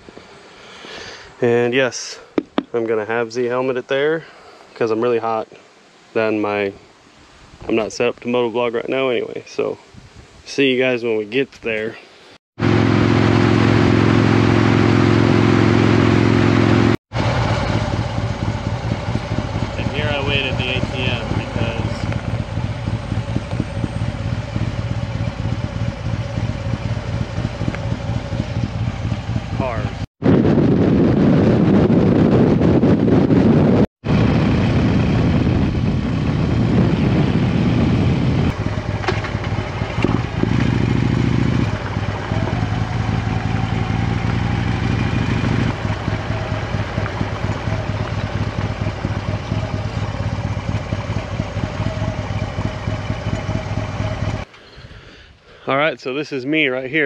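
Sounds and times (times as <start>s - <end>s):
wind rushing over microphone: 9.8s - 10.5s, 18.9s - 25.8s, 26.4s - 52.7s
motorcycle engine running: 12.6s - 54.5s.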